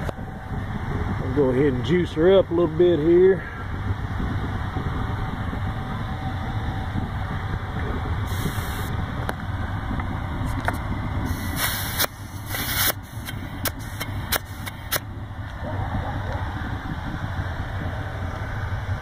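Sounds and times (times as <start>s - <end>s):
short hisses of air: 8.3s - 9.0s, 11.3s - 15.0s.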